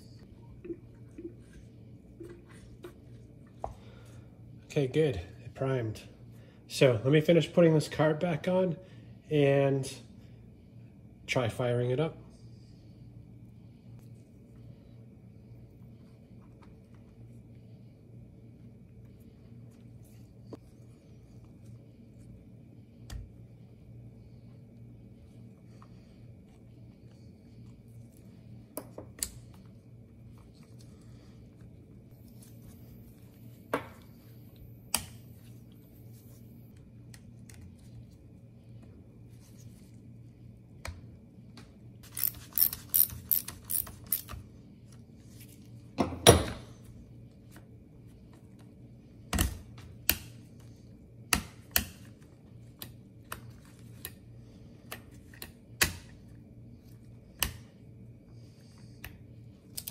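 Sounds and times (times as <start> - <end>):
steady low hum: 0.0 - 59.9
small parts clicking and knocking: 42.0 - 44.4.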